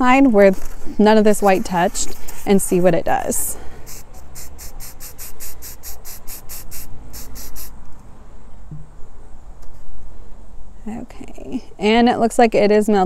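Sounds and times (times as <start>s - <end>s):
spray can hissing in spurts: 3.8s - 7.8s.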